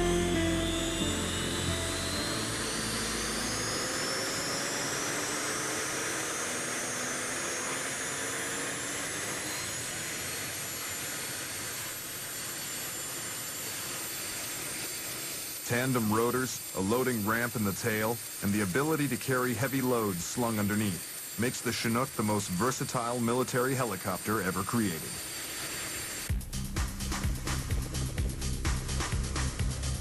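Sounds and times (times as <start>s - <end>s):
music: 0.0s - 4.0s, 26.3s - 30.0s
helicopter engines whining up: 0.0s - 30.0s
rotors rushing hiss: 9.4s - 26.3s.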